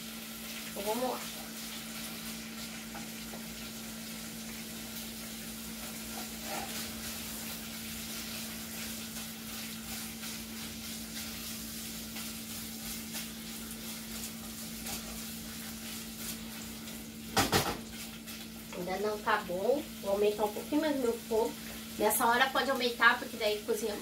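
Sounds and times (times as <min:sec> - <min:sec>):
meat sizzling in a pot: 0:00.0 - 0:24.0
spatula stirring: 0:04.5 - 0:16.9.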